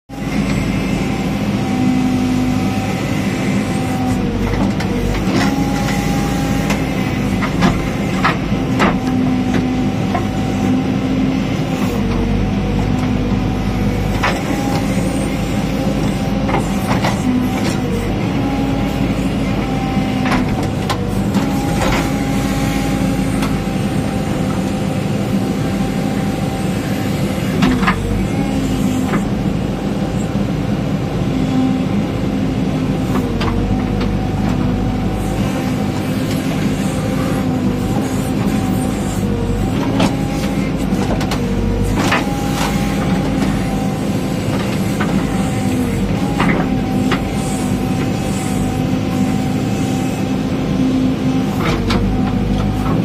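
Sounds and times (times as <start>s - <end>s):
diesel engine under load: 0.1s - 53.0s.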